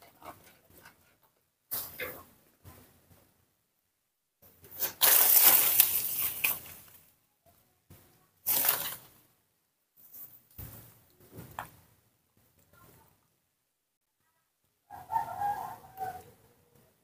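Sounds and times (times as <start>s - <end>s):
rustling and crackling: 0.0s - 3.4s, 4.4s - 7.2s, 7.9s - 9.3s.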